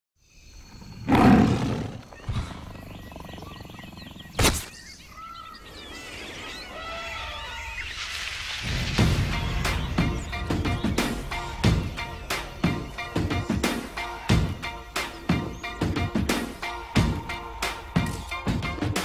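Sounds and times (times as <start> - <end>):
birds chirping and calling: 0.3 - 17.5
big cat roaring: 0.8 - 4.4
sharp crack: 4.4 - 4.8.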